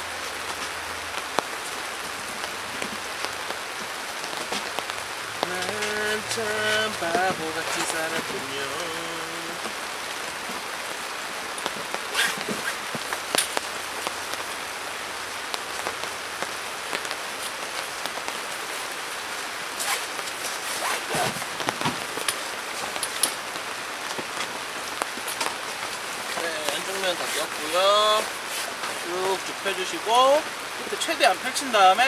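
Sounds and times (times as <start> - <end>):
steady rain falling: 0.0 - 32.0
nylon fabric rustling: 11.6 - 14.7, 15.8 - 29.5.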